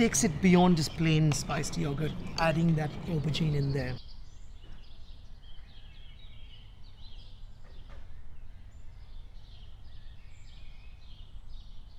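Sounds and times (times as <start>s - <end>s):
low outdoor rumble: 0.0s - 4.0s
birds chirping and singing: 0.0s - 11.9s.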